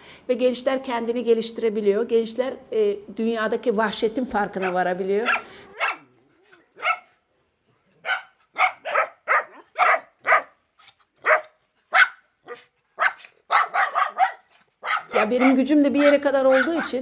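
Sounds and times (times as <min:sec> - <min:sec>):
dogs barking: 0:04.6 - 0:07.2, 0:08.0 - 0:10.6, 0:11.2 - 0:17.0.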